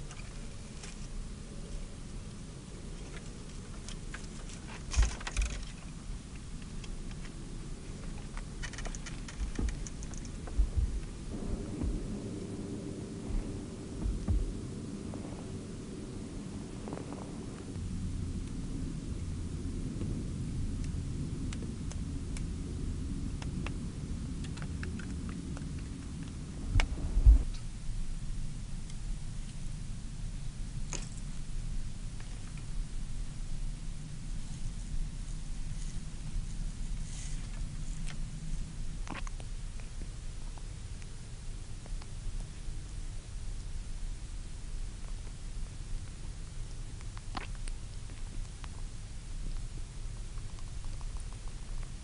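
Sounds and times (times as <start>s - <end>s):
small crisp clicks and crackles: 0.0s - 1.2s, 2.2s - 11.2s, 20.0s - 22.6s, 23.2s - 27.9s, 28.8s - 52.0s
steady low rumble: 0.0s - 52.0s
low thumps: 9.3s - 20.8s, 26.5s - 27.6s
heavy thump: 10.5s - 15.5s, 26.7s - 27.5s.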